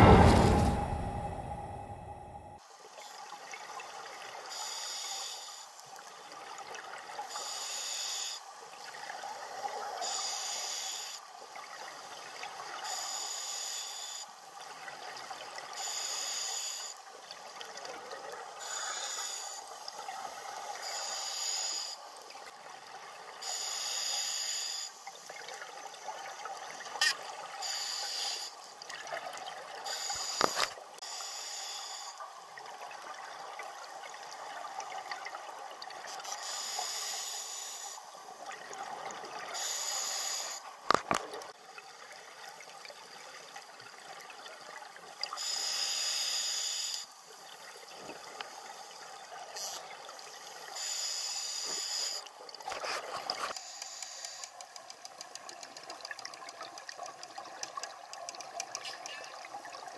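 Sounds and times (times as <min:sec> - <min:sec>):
steady underwater hiss: 0:02.6 - 0:59.9
sharp clicks: 0:53.5 - 0:59.1.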